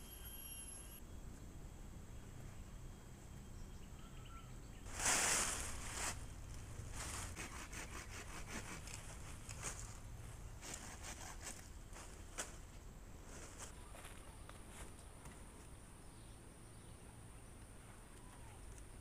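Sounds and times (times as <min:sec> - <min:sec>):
dry branches and leaves rustling: 0:04.8 - 0:15.5.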